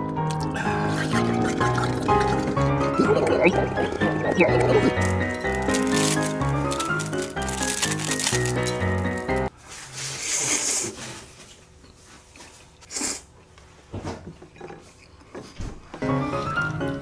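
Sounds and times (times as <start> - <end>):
background music: 0.0 - 9.5, 16.0 - 17.0
person slurping noodles: 0.3 - 5.2.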